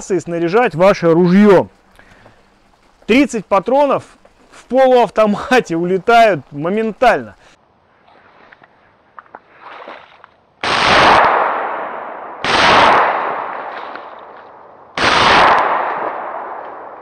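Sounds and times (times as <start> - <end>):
shotgun shots with echo: 10.6 - 14.2, 15.0 - 17.0.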